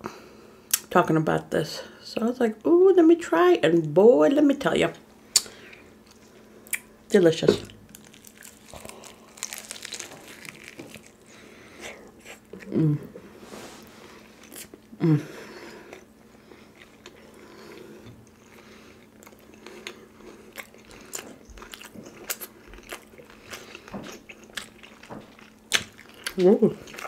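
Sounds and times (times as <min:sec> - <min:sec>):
crunchy chewing: 0:07.6 - 0:12.7, 0:15.8 - 0:27.0
person humming: 0:12.6 - 0:13.2, 0:15.0 - 0:15.4.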